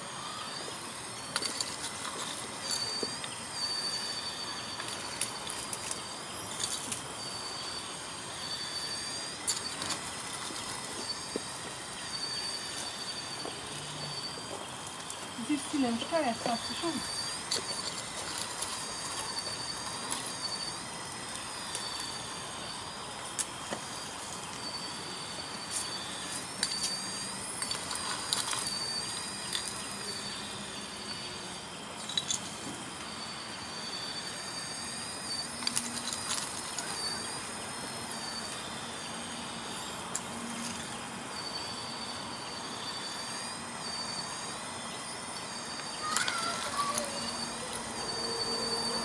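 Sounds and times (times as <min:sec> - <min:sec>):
electric motors whining: 0:00.0 - 0:49.0
gravel stones clicking: 0:00.6 - 0:07.4, 0:08.5 - 0:13.7, 0:14.3 - 0:30.4, 0:34.8 - 0:38.9.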